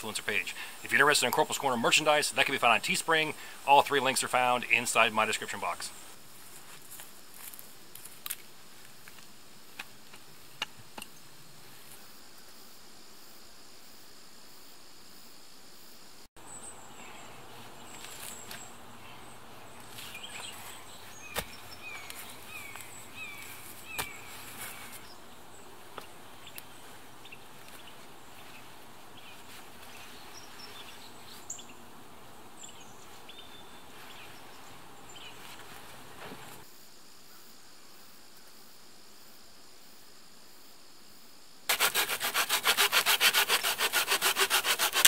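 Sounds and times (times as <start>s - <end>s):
woodland background: 0.0s - 45.0s
bird chirping: 16.4s - 31.9s, 32.5s - 35.7s
stones knocking in dirt: 23.9s - 24.8s.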